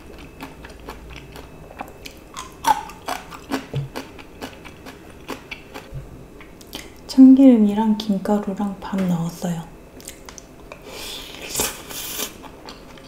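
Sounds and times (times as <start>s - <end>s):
woman chewing food: 0.0s - 6.9s, 10.0s - 13.0s.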